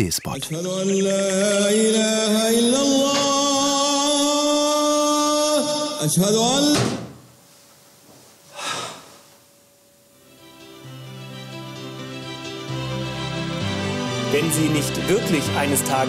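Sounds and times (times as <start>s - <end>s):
man singing call to prayer: 0.4s - 7.1s.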